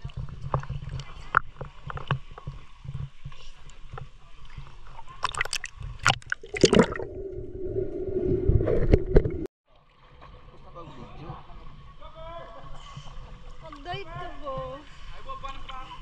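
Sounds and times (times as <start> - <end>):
water sloshing and gurgling: 0.0 - 9.5
low tone and rumble: 5.6 - 9.5.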